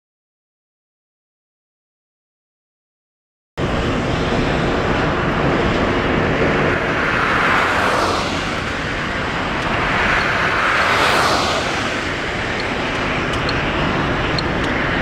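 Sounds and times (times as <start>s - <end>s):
jet engines roaring: 3.6s - 15.0s.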